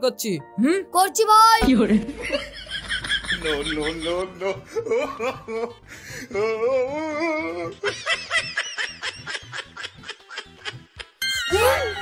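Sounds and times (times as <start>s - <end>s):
person laughing: 1.7s - 5.8s.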